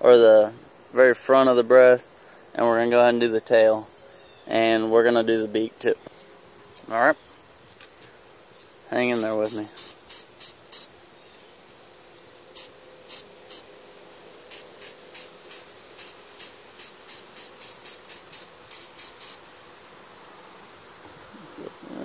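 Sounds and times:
insect drone: 0.0s - 22.0s
spray paint can spritzes: 9.1s - 10.9s, 12.5s - 13.7s, 14.5s - 19.4s.

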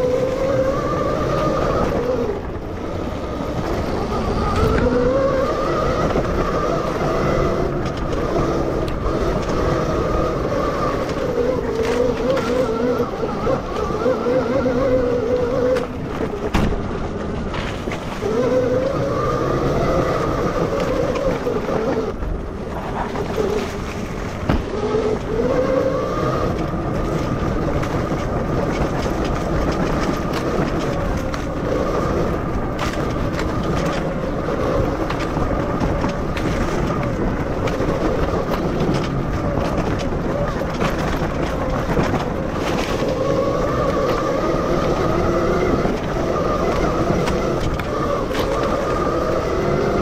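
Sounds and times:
electric motorcycle motor whine: 0.0s - 50.0s
steady rushing noise: 0.0s - 50.0s.

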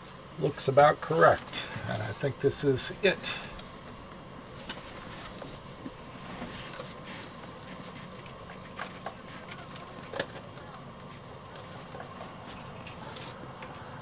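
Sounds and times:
steady background hum: 0.0s - 14.0s.

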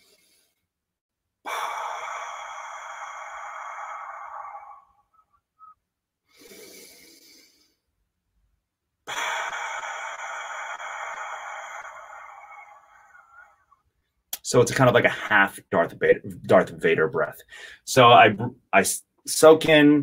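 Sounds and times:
man breathing deeply: 1.4s - 8.0s, 9.0s - 14.2s, 17.4s - 17.9s.

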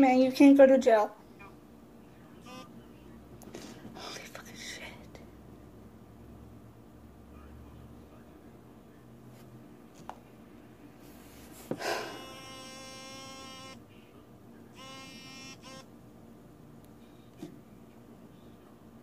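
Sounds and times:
mobile phone buzzing: 2.4s - 2.7s, 11.9s - 13.8s, 14.7s - 15.9s.

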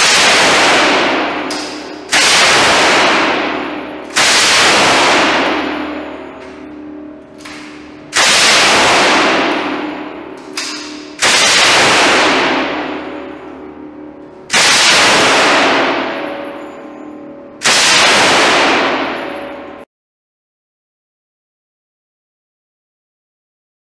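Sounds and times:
machine gun automatic fire: 0.0s - 6.7s, 7.3s - 13.8s, 14.5s - 16.8s, 17.6s - 19.8s.

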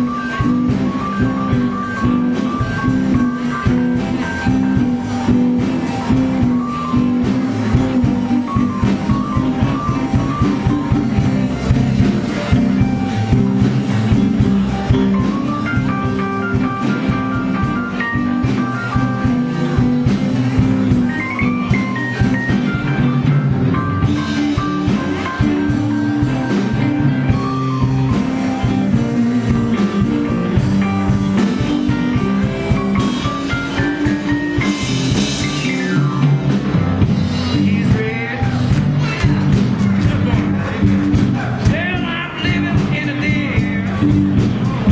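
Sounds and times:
bass guitar: 0.0s - 44.9s
drum kit: 0.0s - 44.9s
electric guitars: 0.0s - 44.9s
keyboard: 0.0s - 44.9s
lead guitar line with bends: 0.0s - 44.9s.

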